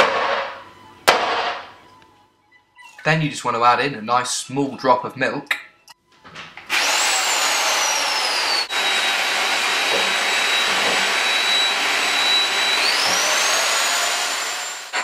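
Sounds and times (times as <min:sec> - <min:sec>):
electric drill whining: 0:06.7 - 0:15.0.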